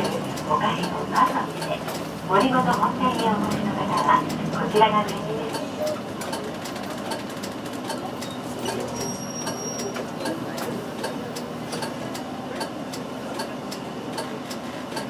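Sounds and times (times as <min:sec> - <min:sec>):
bus engine hum: 0:00.0 - 0:15.0
turn signal relay ticking: 0:00.8 - 0:08.8.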